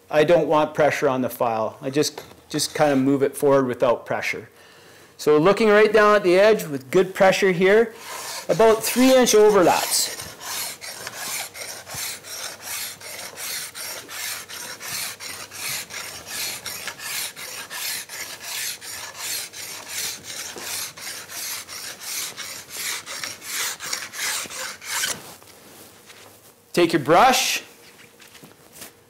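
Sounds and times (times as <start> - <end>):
file rasping along steel edge: 8.0 - 25.2.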